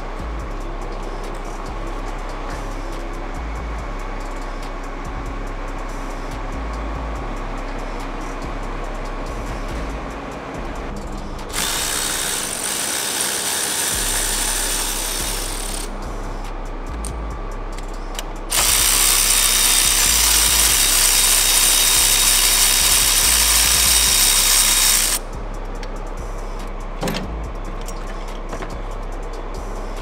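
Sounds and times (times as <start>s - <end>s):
electric ratchet running: 11.4s - 16.0s, 18.2s - 25.2s
ratchet clicks: 11.5s - 16.0s, 16.9s - 25.2s.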